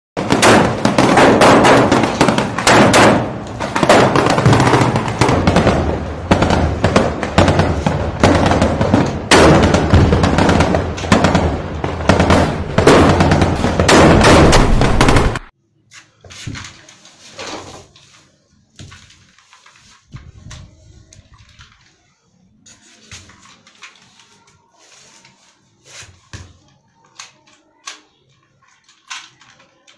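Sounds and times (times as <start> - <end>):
explosions: 0.2 - 15.5
rapid gunfire: 0.2 - 15.5.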